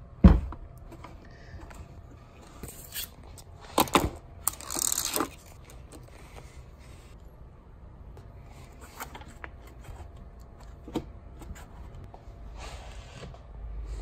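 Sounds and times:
adhesive film rustling and tearing: 4.5s - 5.7s.

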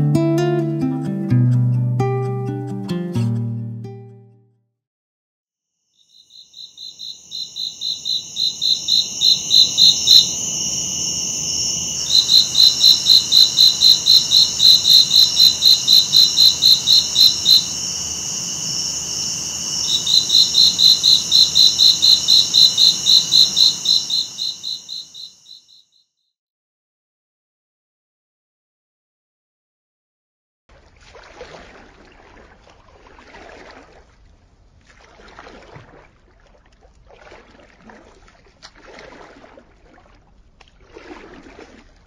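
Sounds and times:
crickets pulsed chirping: 6.0s - 25.8s
high insect trill: 6.0s - 25.8s.

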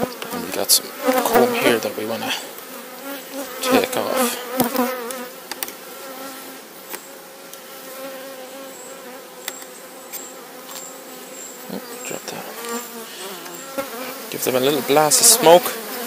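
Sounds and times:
honeybees buzzing: 0.0s - 16.0s.

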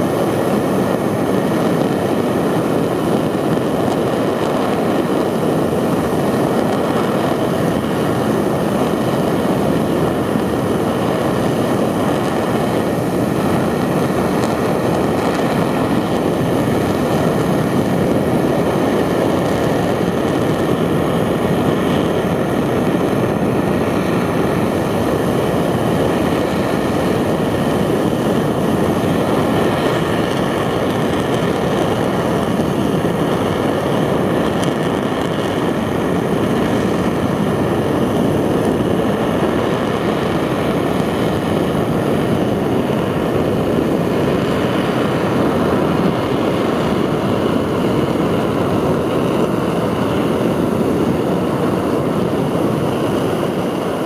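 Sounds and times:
rocket engine roaring: 0.0s - 54.0s.

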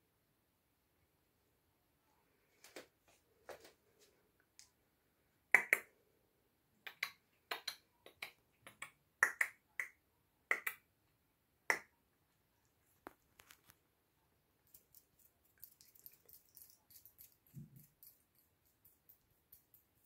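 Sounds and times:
finger snaps: 5.6s - 5.9s, 6.8s - 10.8s, 11.7s - 11.9s.

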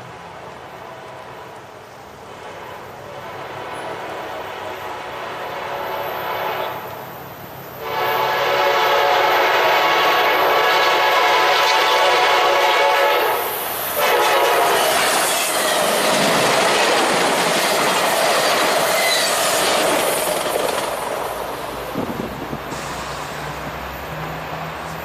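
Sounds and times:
diesel train passing: 0.0s - 25.0s
wheel squeal: 18.4s - 19.8s.

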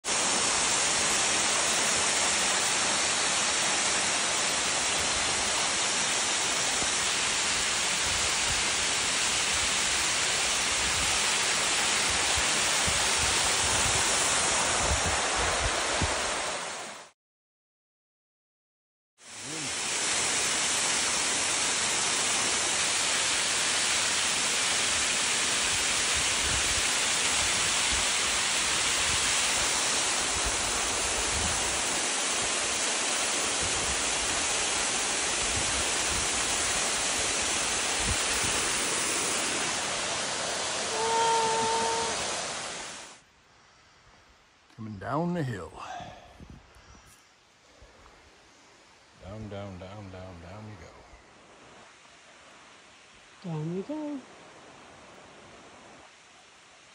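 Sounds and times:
waterfall rushing: 0.1s - 17.1s, 19.2s - 43.2s.

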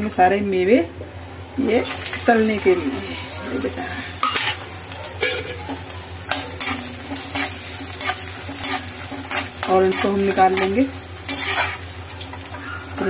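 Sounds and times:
nuts sizzling in ghee: 1.7s - 13.0s
metal ladle scraping pan: 2.9s - 4.6s, 6.3s - 13.0s.

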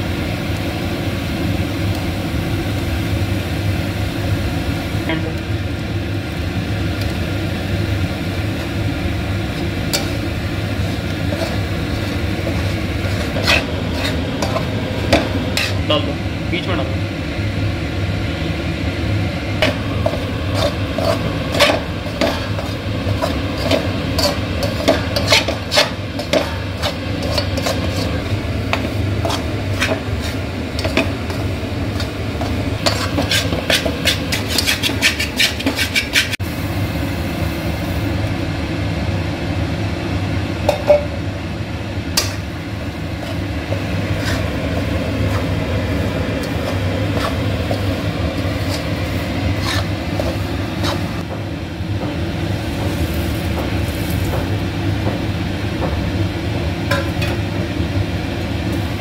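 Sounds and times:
steady low hum: 0.0s - 59.0s
metal spatula scraping pan: 9.9s - 15.9s, 19.6s - 36.4s, 43.2s - 51.2s.

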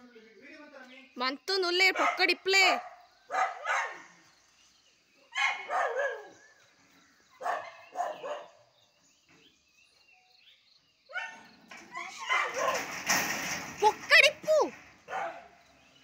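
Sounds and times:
dog barking: 1.9s - 4.2s, 5.3s - 6.4s, 7.4s - 8.6s, 11.1s - 12.9s, 15.1s - 15.6s.

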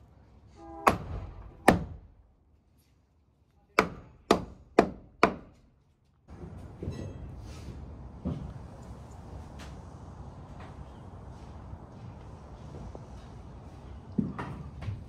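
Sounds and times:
hammer driving nail into wood: 3.8s - 5.6s.

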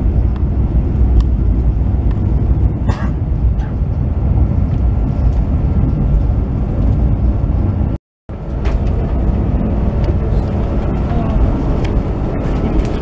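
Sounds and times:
train rumbling inside carriage: 0.0s - 13.0s.

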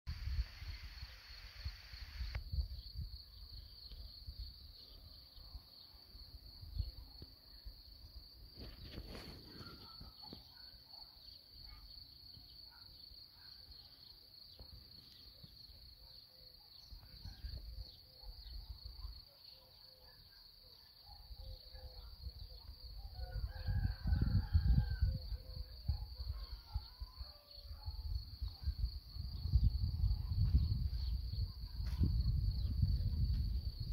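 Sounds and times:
high-pitched insect trill: 0.3s - 19.2s, 21.2s - 33.9s
rooster crowing faintly: 23.0s - 28.0s
wind buffeting microphone: 23.3s - 26.0s, 28.3s - 33.9s.

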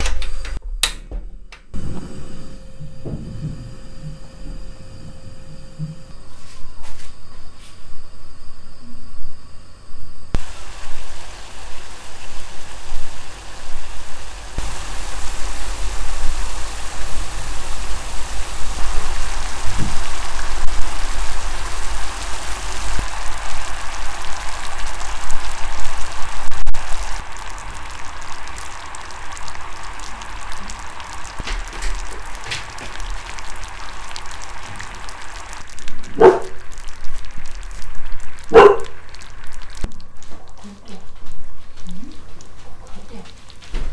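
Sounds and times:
syrup bubbling in frying pan: 10.4s - 40.3s.

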